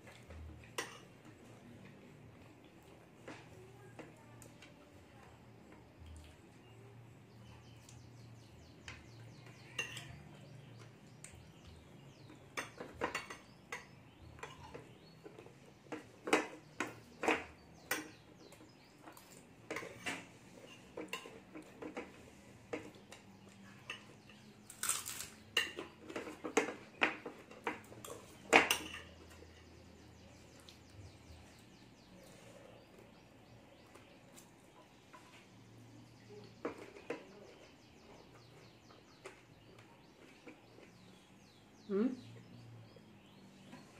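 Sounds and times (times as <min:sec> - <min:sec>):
metal spoon clinking on a plate: 0:00.6 - 0:01.1, 0:09.6 - 0:10.4, 0:12.5 - 0:14.9, 0:22.8 - 0:29.7.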